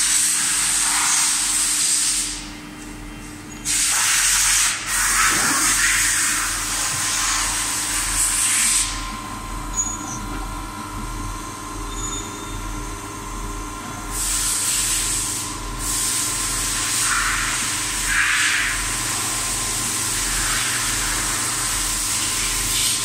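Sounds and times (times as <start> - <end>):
coolant hiss: 0.0 - 2.5, 3.6 - 9.6, 12.8 - 23.0
milling spindle whine: 6.6 - 14.1.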